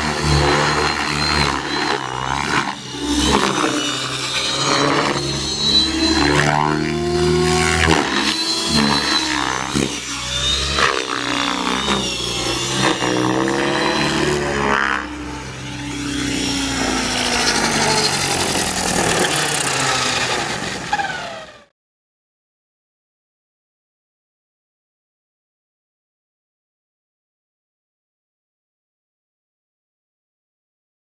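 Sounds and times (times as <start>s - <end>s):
rc helicopter motor whine: 0.0s - 21.7s.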